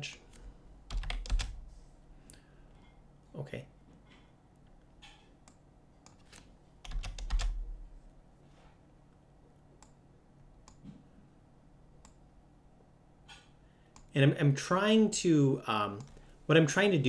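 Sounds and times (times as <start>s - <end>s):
keyboard typing: 0.9s - 1.6s, 5.5s - 7.6s.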